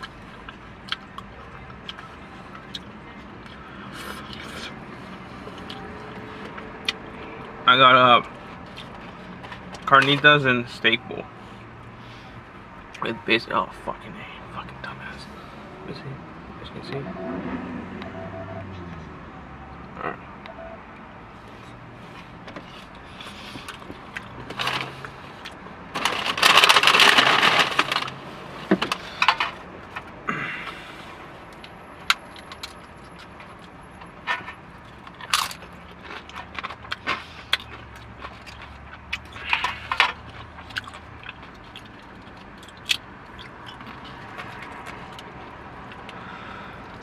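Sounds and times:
chewing: 0.0s - 7.6s, 34.8s - 47.0s.

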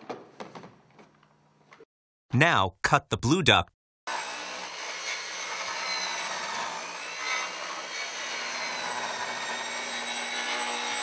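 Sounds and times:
circular saw cutting pipe: 4.1s - 11.0s.

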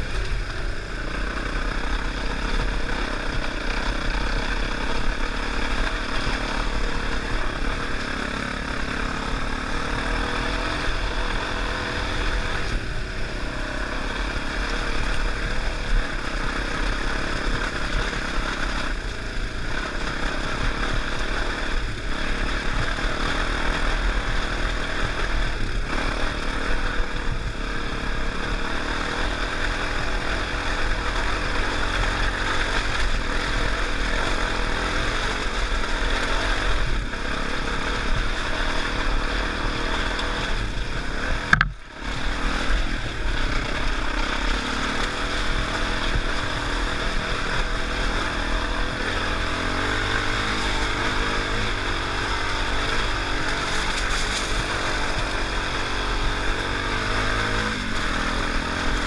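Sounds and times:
dirt bike engine running: 0.0s - 59.0s
sharp knock: 41.5s - 41.8s.

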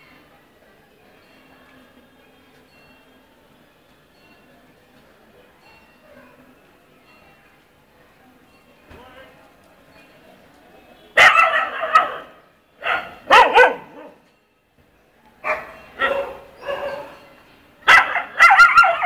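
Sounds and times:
dogs barking and yelping: 11.2s - 14.2s, 15.4s - 17.2s, 17.9s - 19.0s.

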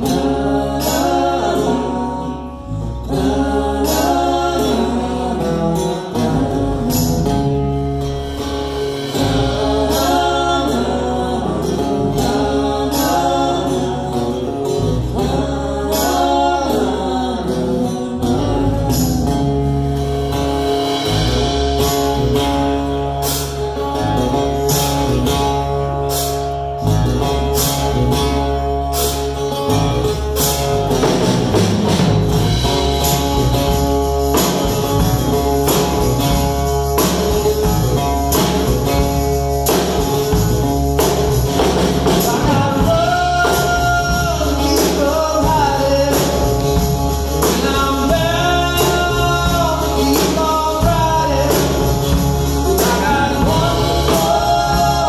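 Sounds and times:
woman singing: 0.0s - 7.6s, 9.2s - 19.5s, 52.6s - 55.0s
live rock band playing: 0.0s - 55.0s
tambourine shaken: 30.4s - 55.0s.

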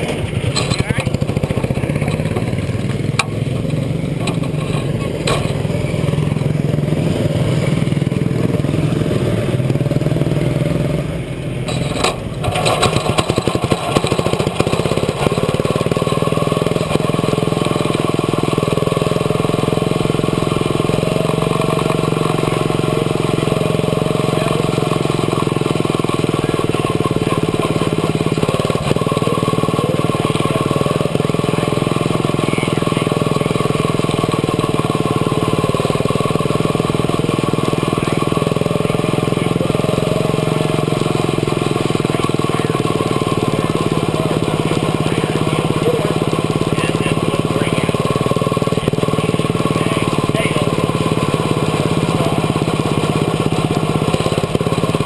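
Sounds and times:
small race car engine running: 0.0s - 55.0s.

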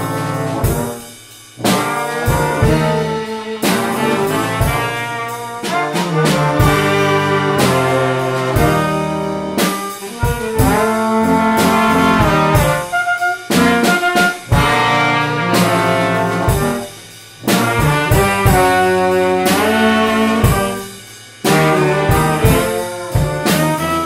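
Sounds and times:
drums: 0.0s - 24.0s
small jazz band playing: 0.0s - 24.0s
trumpet: 0.0s - 24.0s.

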